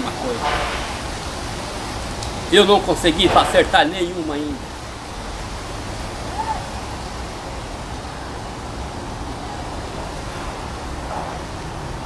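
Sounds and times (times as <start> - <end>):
even hiss: 0.0 - 7.3.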